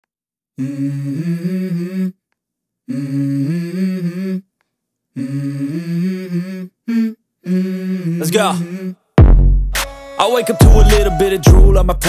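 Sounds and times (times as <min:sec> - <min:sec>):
person humming melody: 0:00.6 - 0:02.2, 0:02.9 - 0:04.5, 0:05.2 - 0:09.0, 0:10.2 - 0:12.0.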